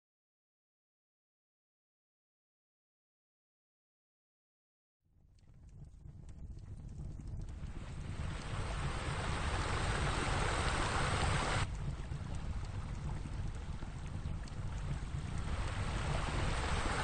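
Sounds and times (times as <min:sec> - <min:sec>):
low rumble: 0:05.4 - 0:17.0
rushing noise: 0:08.6 - 0:11.6.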